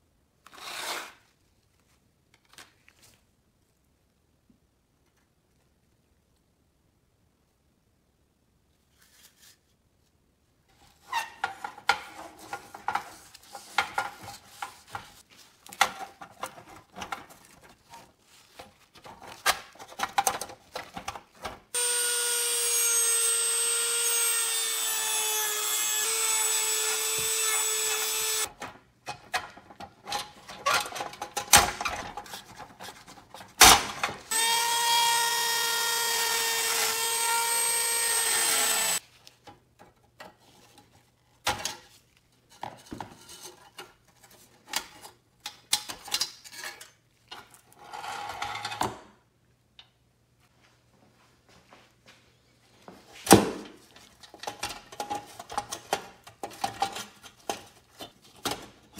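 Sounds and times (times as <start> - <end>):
rotary tool sanding whine: 21.8 - 28.5, 34.3 - 39.0
clicks and scrapes on sheet metal: 42.5 - 49.0, 54.2 - 58.9.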